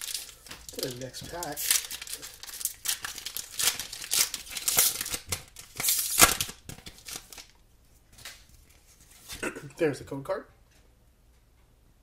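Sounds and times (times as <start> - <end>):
foil wrapper tearing and crinkling: 0.0 - 7.5.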